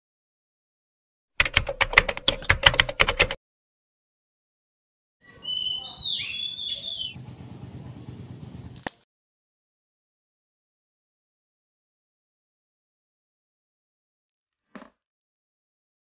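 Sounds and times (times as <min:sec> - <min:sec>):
typing clicks: 0:01.4 - 0:03.4
birds chirping: 0:05.2 - 0:08.4.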